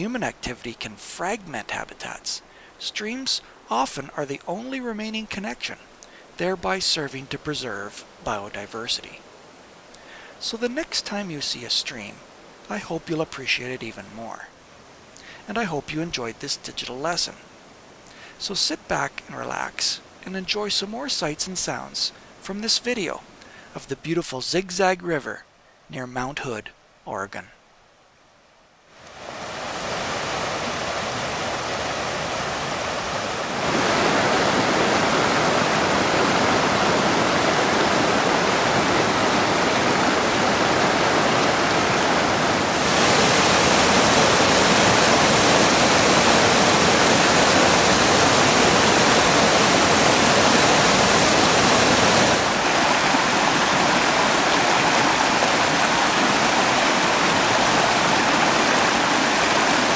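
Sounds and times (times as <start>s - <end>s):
river rushing over boulders: 28.9s - 59.9s.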